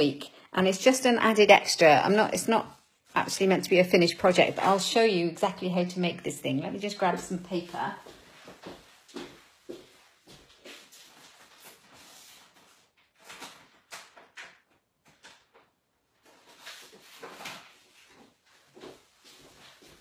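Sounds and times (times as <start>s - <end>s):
paper rustling and sliding: 10.7s - 14.4s, 16.2s - 20.0s.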